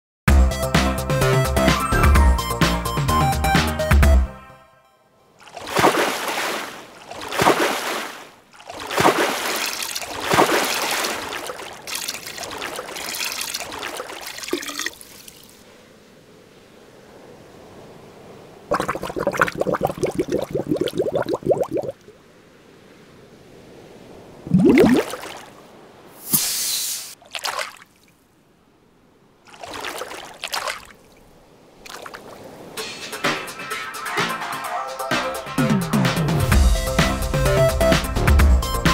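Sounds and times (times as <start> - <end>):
water splashing from buckets: 5.4 - 15.6, 18.7 - 22.0, 24.4 - 25.5, 27.1 - 28.1, 29.5 - 31.0, 31.8 - 32.6
steady water pour: 9.4 - 15.6, 18.7 - 22.0, 24.5 - 25.4
short hiss: 26.2 - 27.2.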